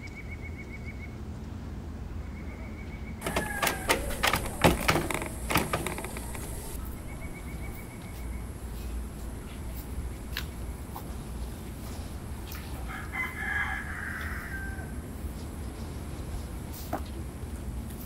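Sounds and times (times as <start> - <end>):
door knob turning and rattling: 3.2 - 6.8
door knocking in frame: 3.2 - 6.8.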